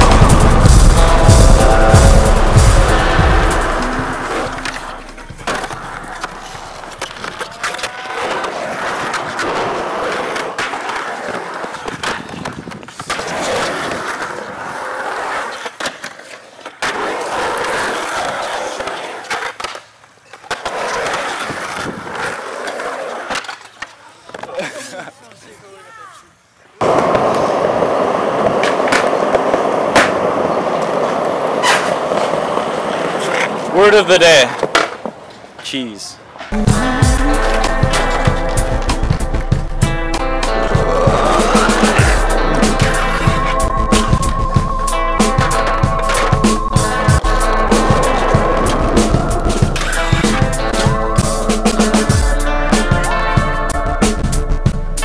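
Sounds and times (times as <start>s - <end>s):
skateboard wheels rolling on concrete: 0.0s - 55.0s
skateboard clacking on concrete: 4.6s - 24.7s, 26.8s - 35.7s
sharp skateboard clacks: 26.8s - 33.8s.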